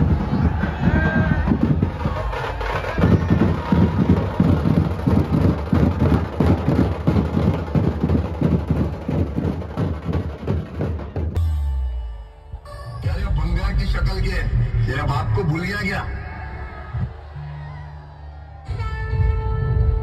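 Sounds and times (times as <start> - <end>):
heavy fast procession drumming: 0.0 - 11.4.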